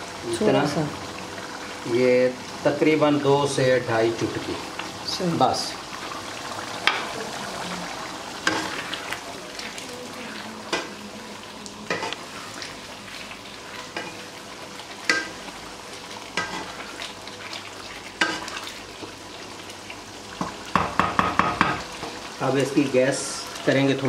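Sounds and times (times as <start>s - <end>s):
meat sizzling in a pan: 0.0s - 24.0s
utensil knocking against pan: 20.7s - 21.8s.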